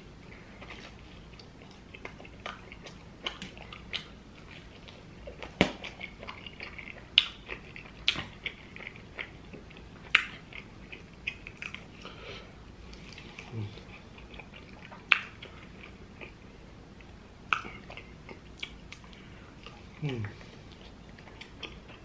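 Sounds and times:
chewing pizza: 0.2s - 22.0s
wet lip smacks: 17.5s - 17.8s.

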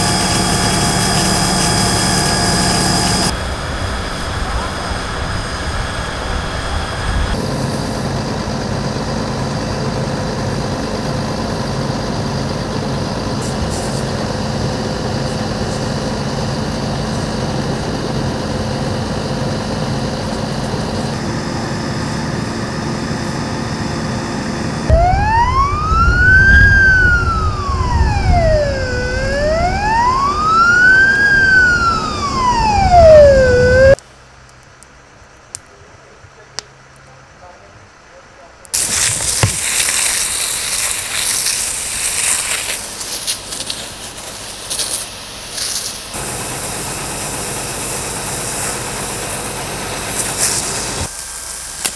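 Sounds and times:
hose spraying water: 0.0s - 8.1s, 13.4s - 14.3s, 38.7s - 51.9s
wailing fire truck siren: 0.0s - 13.5s, 14.1s - 34.0s
fire truck engine running: 0.0s - 51.9s.

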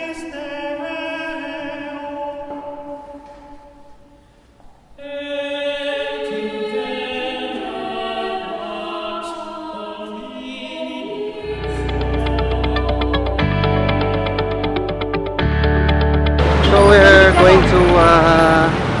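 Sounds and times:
choir singing held chords: 5.0s - 19.0s.

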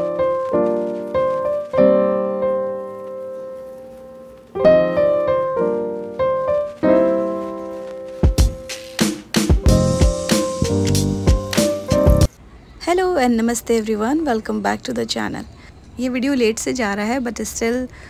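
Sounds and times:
piano chords: 0.0s - 12.3s.

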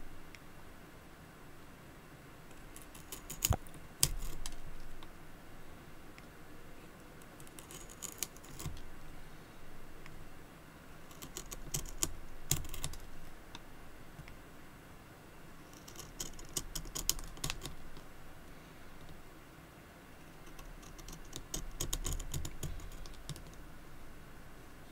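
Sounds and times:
knife shaving wooden pencil: 2.5s - 4.7s, 7.3s - 8.9s, 11.1s - 13.1s, 15.6s - 18.0s, 20.4s - 23.4s.

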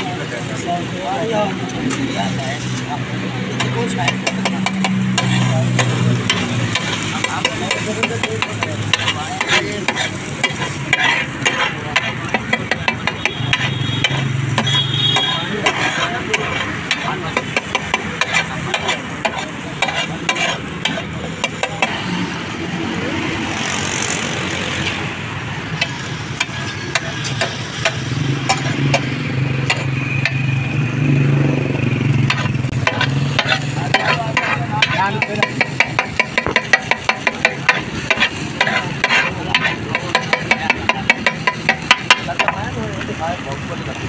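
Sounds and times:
metal spatulas scraping on griddle: 3.5s - 22.1s, 25.7s - 30.5s, 32.2s - 42.7s
egg sizzling: 3.6s - 30.6s, 31.6s - 42.8s.

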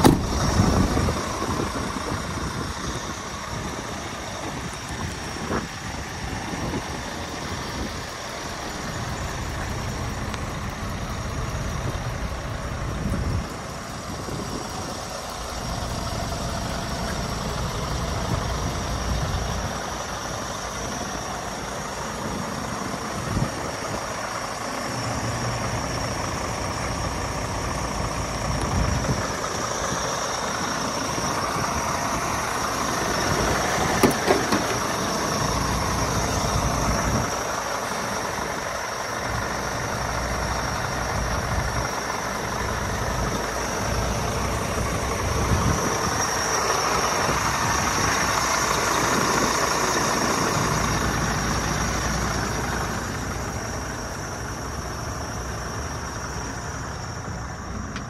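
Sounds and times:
diesel engine idling: 0.0s - 58.0s.

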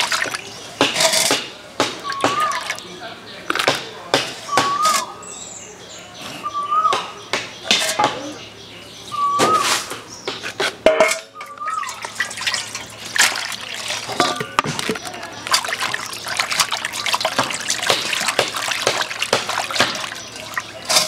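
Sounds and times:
water trickling and dripping: 0.0s - 0.7s, 11.4s - 21.0s
water splashing in steel bowl: 0.0s - 2.8s, 11.0s - 21.0s.

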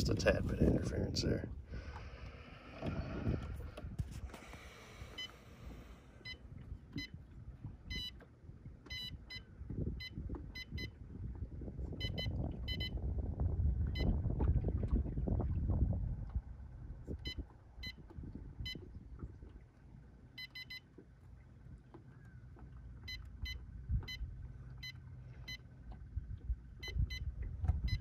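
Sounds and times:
low rumble: 0.0s - 19.6s
low steady hum: 0.0s - 28.0s
short high beeps: 7.9s - 8.2s, 8.9s - 9.4s, 12.0s - 13.0s, 20.4s - 20.8s.

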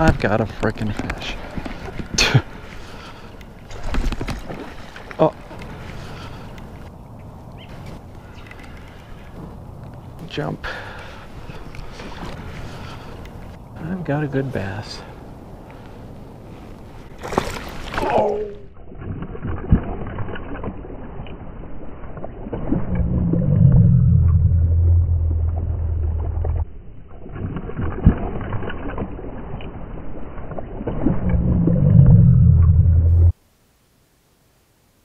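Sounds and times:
fish splashing at surface: 17.2s - 18.3s
muffled low rumbling: 22.7s - 26.8s, 31.0s - 33.4s.

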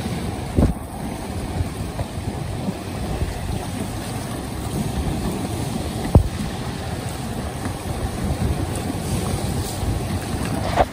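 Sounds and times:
water splashing against hull: 0.0s - 10.9s
wind buffeting microphone: 0.0s - 10.9s.

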